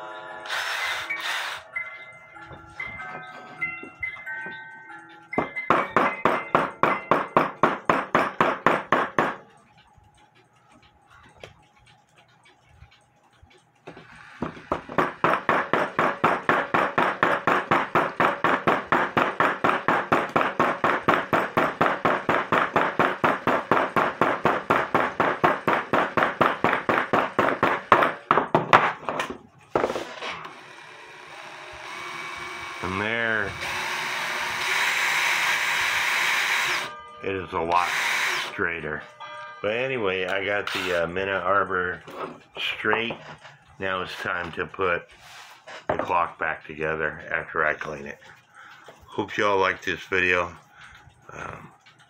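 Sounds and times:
hammer tapping wire on wood: 0:04.0 - 0:29.9.

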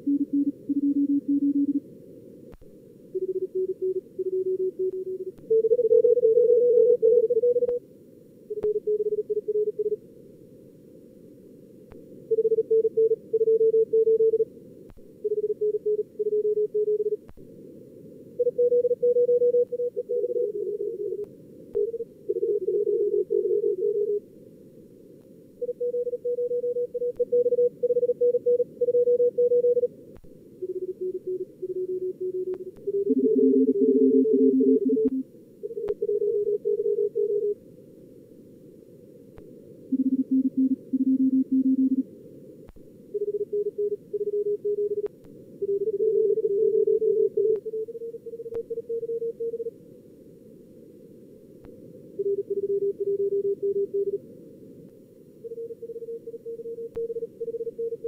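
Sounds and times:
morse code tones: 0:30.6 - 0:35.2, 0:39.9 - 0:42.0.

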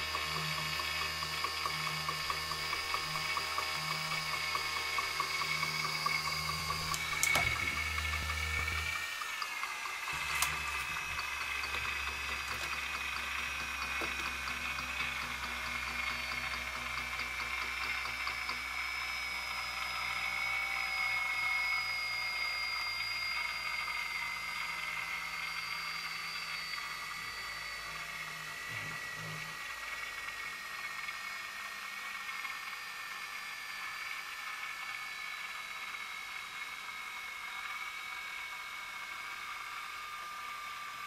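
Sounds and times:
low hum: 0:00.0 - 0:20.4
high-pitched motor whine: 0:00.0 - 0:41.0.

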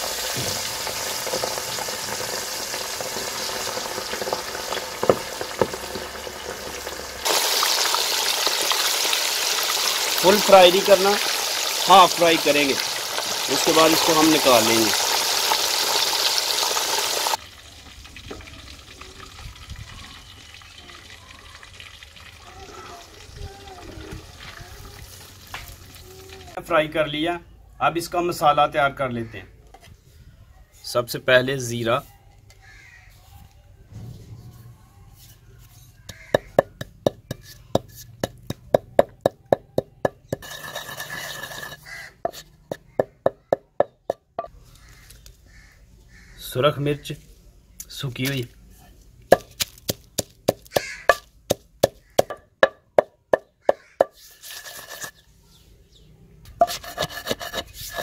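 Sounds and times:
fish deep-frying in oil: 0:00.0 - 0:26.6
low rumble: 0:33.9 - 0:35.2
pestle pounding in stone mortar: 0:36.1 - 0:44.5, 0:49.3 - 0:55.1, 0:56.6 - 0:58.0
rasping noise: 0:56.6 - 0:58.0.

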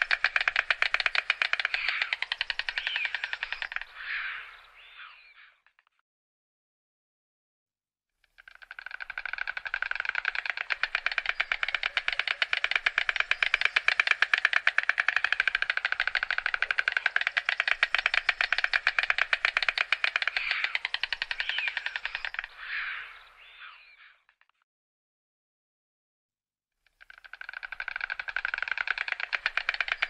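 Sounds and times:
stork bill-clattering: 0:00.0 - 0:03.9, 0:08.5 - 0:22.4, 0:27.0 - 0:30.0.

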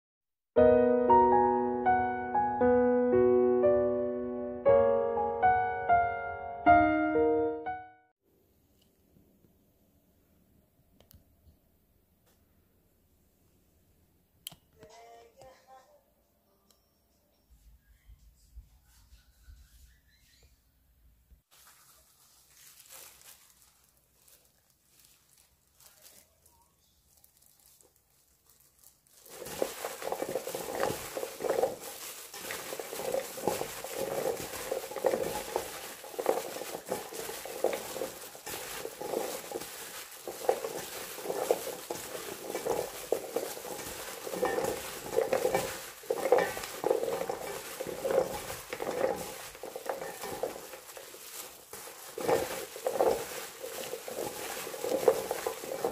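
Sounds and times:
peppers rustling in flour in bowl: 0:21.4 - 0:55.9.

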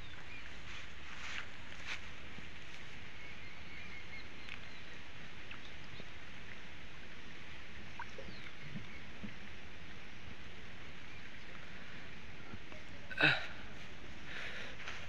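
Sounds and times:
water swishing and lapping: 0:00.0 - 0:12.9
steady outdoor hiss: 0:00.0 - 0:15.0
faint bird chirps: 0:02.8 - 0:06.2, 0:07.9 - 0:09.5.

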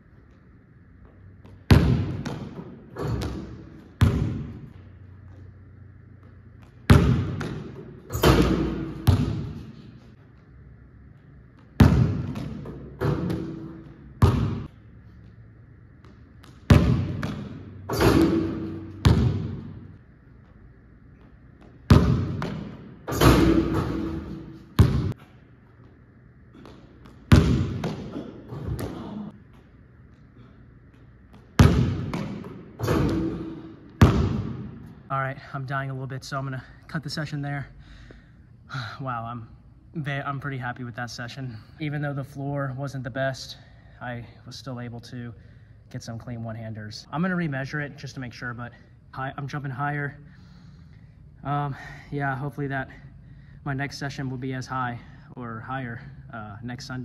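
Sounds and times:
basketball bouncing on hardwood: 0:01.4 - 0:04.8, 0:06.2 - 0:09.7, 0:11.7 - 0:14.7, 0:16.0 - 0:19.8, 0:21.6 - 0:25.2, 0:27.1 - 0:29.1, 0:31.3 - 0:34.8.

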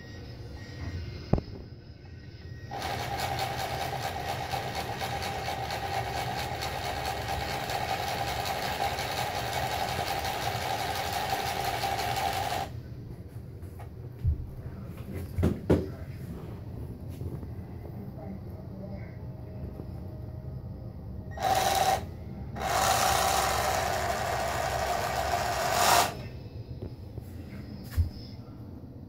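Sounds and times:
electric motor whining: 0:21.3 - 0:26.3.

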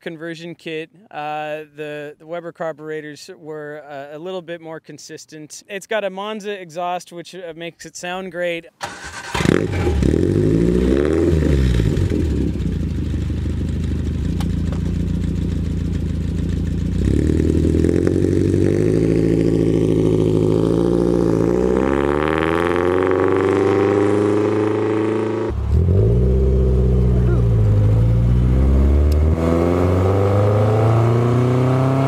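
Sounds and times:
car pulling away: 0:08.8 - 0:32.0
car engine revving and idling: 0:09.1 - 0:32.0.

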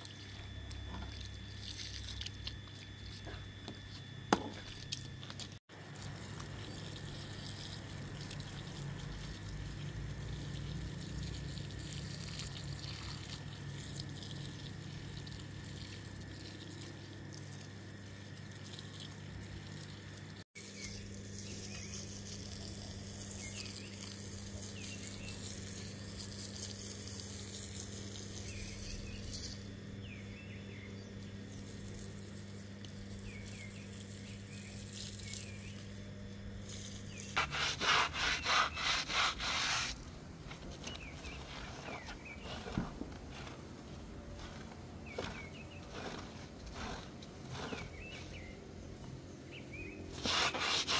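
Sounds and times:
steady low hum: 0:00.0 - 0:50.9
water from hose splashing: 0:05.8 - 0:29.6.

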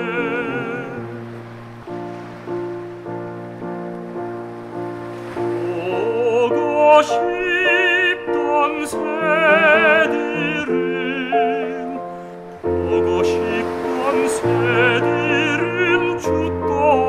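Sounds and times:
man singing operatic: 0:00.0 - 0:01.3, 0:05.4 - 0:17.0
piano accompaniment: 0:00.0 - 0:17.0.

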